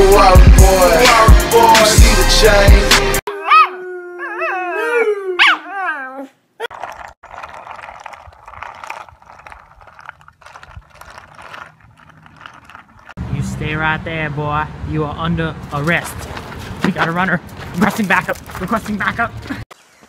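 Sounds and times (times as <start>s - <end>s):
dog howling: 3.3s - 6.3s
skateboard rolling over asphalt: 6.7s - 13.2s.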